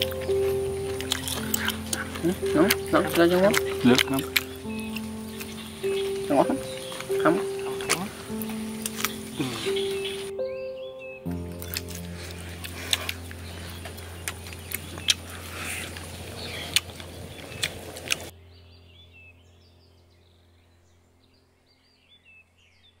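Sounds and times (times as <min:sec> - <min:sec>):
chewing and lip-smacking: 0:00.0 - 0:10.3, 0:11.5 - 0:18.3
bird chirps: 0:00.0 - 0:23.0.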